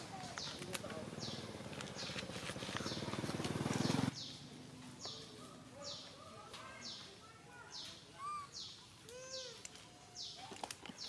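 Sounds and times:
lower bird chirps: 6.8s - 10.4s.

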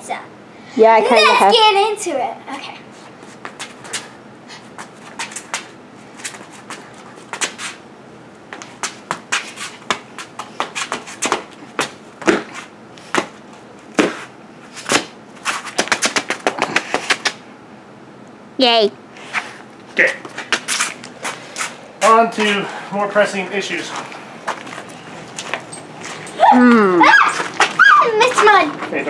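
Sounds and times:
sneakers stamping on concrete: 4.8s - 7.8s, 8.5s - 17.4s, 23.8s - 26.4s.

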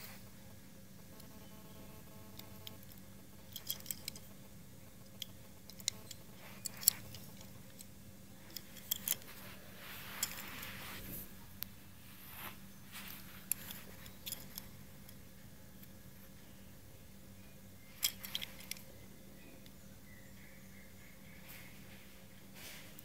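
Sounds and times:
faint steady hum: 0.0s - 23.0s
soft rustling: 5.4s - 15.2s
light clicks and taps of toy car: 18.0s - 18.9s.

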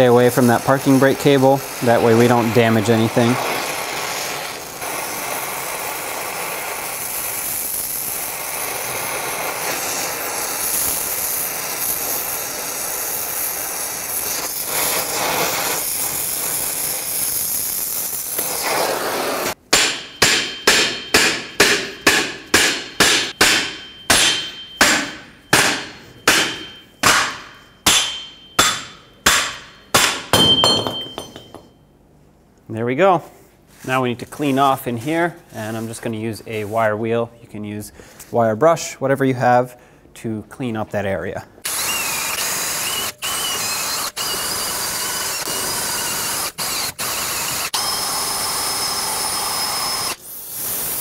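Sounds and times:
torch flame hissing: 0.0s - 19.6s, 41.7s - 51.0s
hammer striking metal: 19.7s - 31.8s.

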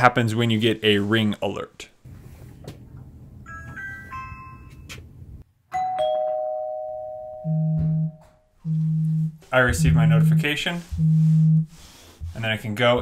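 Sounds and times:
ding-dong door chime: 3.5s - 4.9s, 5.7s - 8.2s
doorbell button press: 5.8s - 8.2s
phone vibrating on table: 7.4s - 12.4s.

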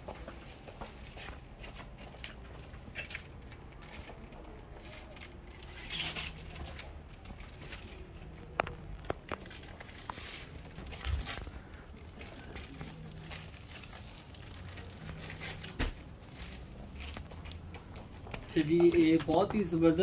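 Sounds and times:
fabric rustling: 4.8s - 17.8s.

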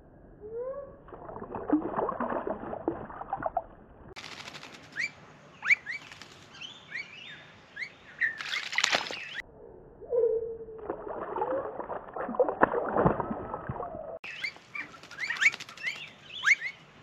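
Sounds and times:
bird splashing in water: 1.1s - 5.1s, 8.3s - 9.4s, 10.8s - 13.8s.

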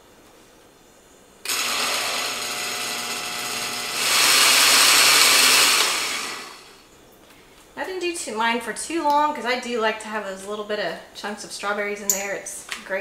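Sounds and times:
blender motor running: 1.5s - 6.8s.

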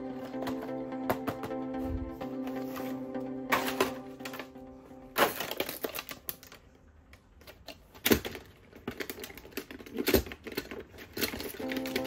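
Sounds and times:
plastic toy parts clicking: 7.4s - 12.0s.

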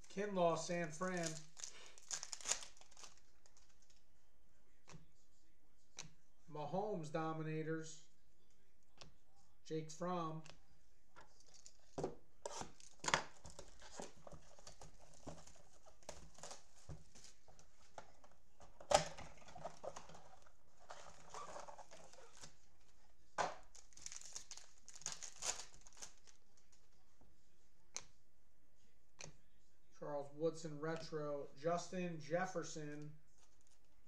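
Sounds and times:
wrapper crinkling: 0.9s - 3.9s, 23.5s - 26.4s.

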